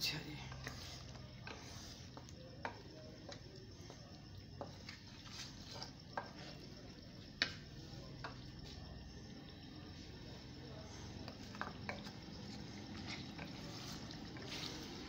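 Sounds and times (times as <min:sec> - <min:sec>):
wooden spoon stirring in pot: 0:00.0 - 0:15.0.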